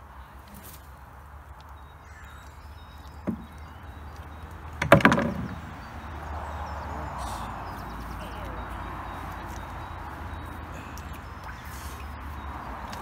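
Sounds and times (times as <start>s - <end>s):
paddle clattering on wooden boards: 3.2s - 3.6s, 4.8s - 5.6s.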